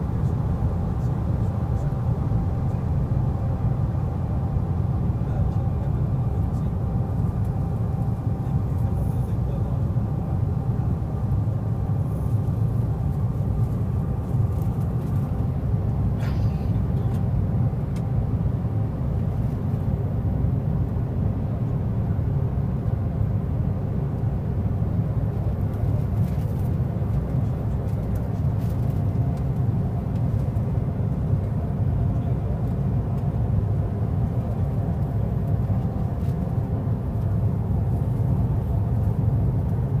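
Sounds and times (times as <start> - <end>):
jet engines at climb power: 0.0 - 40.0.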